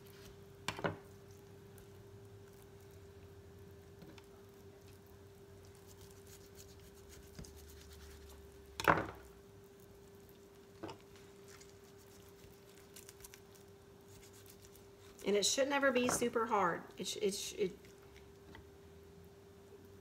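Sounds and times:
faint hum: 0.0s - 20.0s
knife and skin rustles: 4.4s - 8.7s, 9.7s - 15.4s.

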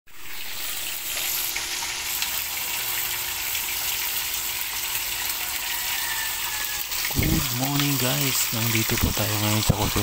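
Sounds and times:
fish frying in hot oil: 0.1s - 10.0s.

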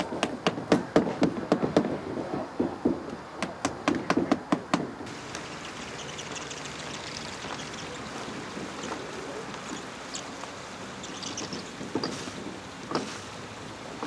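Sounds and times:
faint steady hiss: 4.7s - 14.0s
light ticks: 5.3s - 5.5s.

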